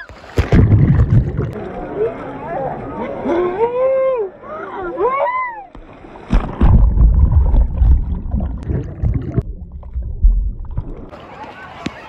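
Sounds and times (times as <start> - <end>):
muffled underwater bubbles: 0.0 - 1.6, 6.4 - 11.1
wave breaking with splashing water: 0.0 - 1.6, 5.8 - 11.2.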